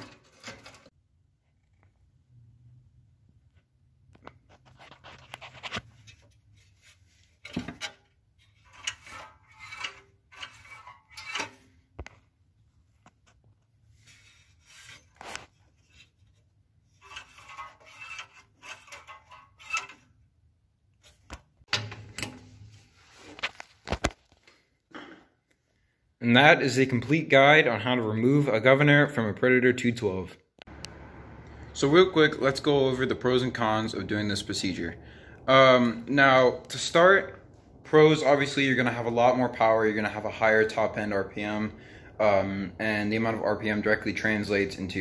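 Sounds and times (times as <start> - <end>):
scraping and rubbing: 0.0 - 1.0, 4.2 - 12.1, 13.1 - 20.2.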